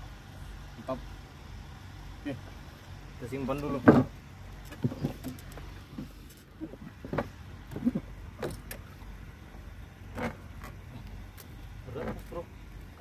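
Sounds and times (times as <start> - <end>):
low steady rumble: 0.0 - 13.0
knocks and clacks in wooden boat: 3.7 - 6.1, 6.8 - 8.9, 10.1 - 11.0, 12.0 - 12.3.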